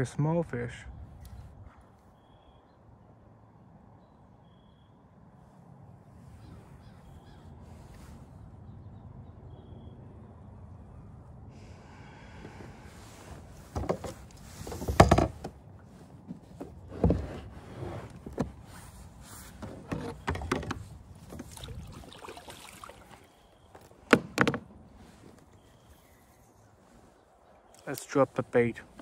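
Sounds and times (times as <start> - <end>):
gear knocking against kayak hull: 13.7 - 15.6, 19.6 - 21.7, 23.8 - 24.8.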